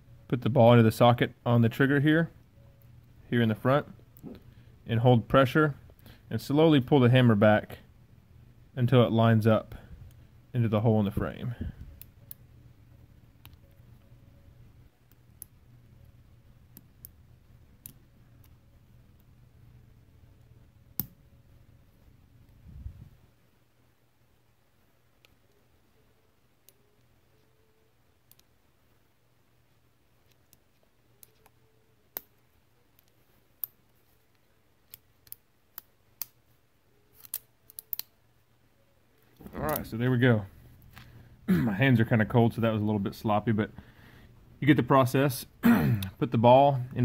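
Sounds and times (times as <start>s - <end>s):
low room hum: 0.0s - 47.0s
small metal parts clicking: 37.1s - 38.1s.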